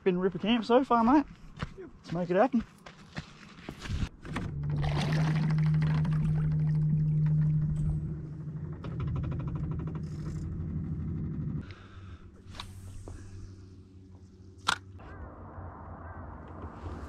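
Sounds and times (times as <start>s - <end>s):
outboard motor running: 4.2s - 14.4s.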